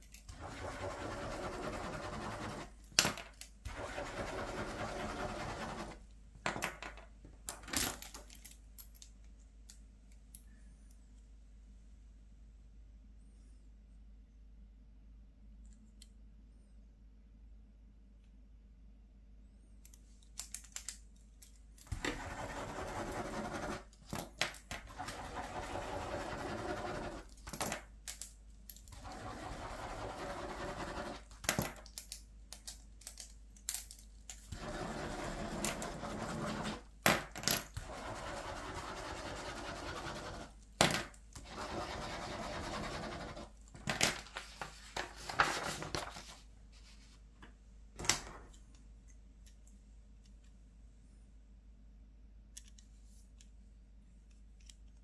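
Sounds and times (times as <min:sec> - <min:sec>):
plastic click pens clicking: 0:19.9 - 0:21.6, 0:31.4 - 0:34.5.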